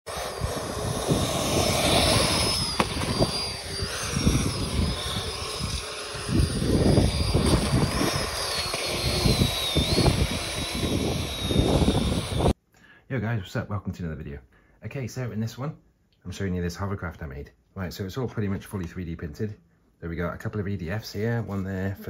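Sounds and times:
rush of air: 0.1s - 12.5s
electric ducted fans whining: 0.1s - 12.6s.

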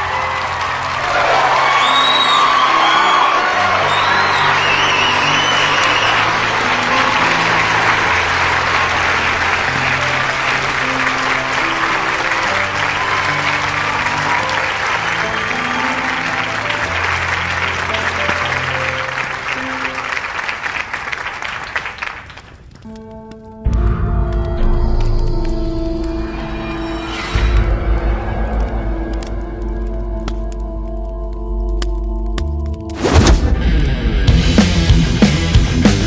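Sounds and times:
audience applause: 0.0s - 22.9s
music with held bass notes: 30.2s - 36.0s.

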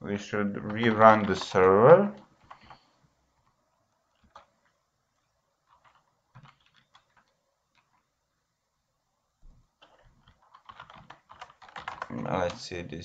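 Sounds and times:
computer keys and mouse clicks: 0.6s - 4.8s, 5.6s - 8.1s, 9.8s - 12.7s.

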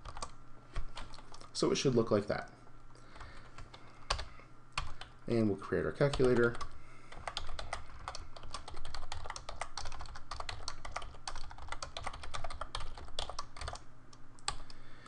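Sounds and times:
typing on computer keyboard: 0.0s - 0.4s, 3.2s - 5.1s, 6.1s - 13.8s, 14.4s - 14.8s.

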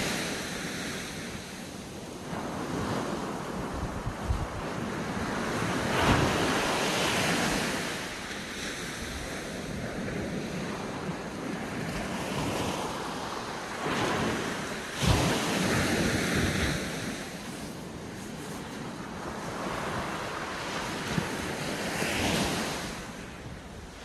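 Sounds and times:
small waves breaking on beach: 0.0s - 24.0s
wind rumbling on microphone: 0.0s - 24.0s.

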